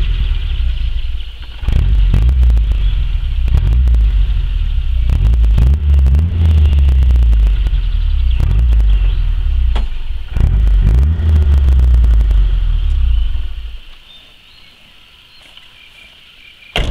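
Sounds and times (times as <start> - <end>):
loud low rumble: 0.0 - 13.9
crackles and knocks: 1.4 - 14.0.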